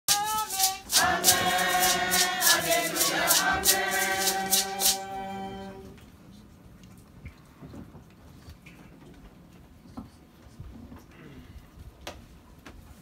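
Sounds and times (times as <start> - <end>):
sharp percussion beat: 0.1 - 5.6
congregation singing a hymn: 0.1 - 6.0.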